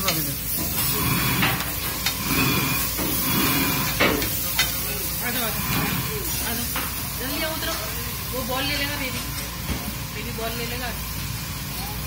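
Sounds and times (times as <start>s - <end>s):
gravy sizzling on metal griddle: 0.0s - 12.0s
spatula clacking on griddle: 3.8s - 5.5s.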